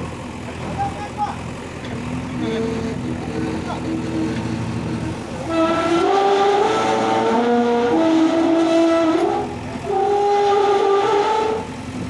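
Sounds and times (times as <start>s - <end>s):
concrete pole scraping on steel: 2.4s - 11.6s
high-pitched metal squealing: 2.4s - 11.8s.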